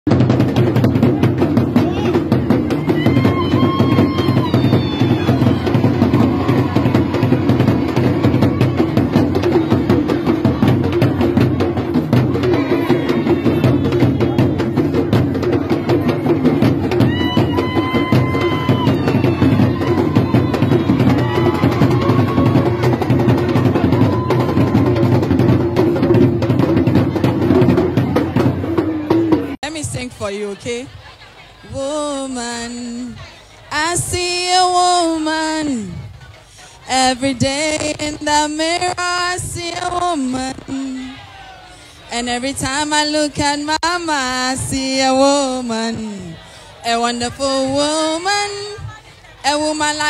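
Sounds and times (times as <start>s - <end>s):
drum-heavy dance music: 0.1s - 30.0s.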